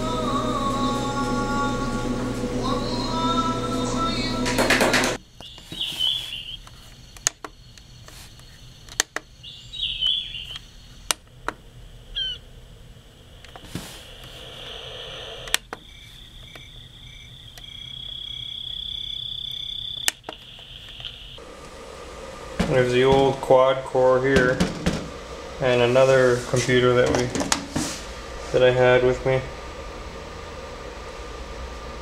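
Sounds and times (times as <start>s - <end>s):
steady high pulsing tone: 0.0s - 5.2s, 12.0s - 19.9s
bird-like chirps from speaker: 5.4s - 6.6s, 9.5s - 10.6s.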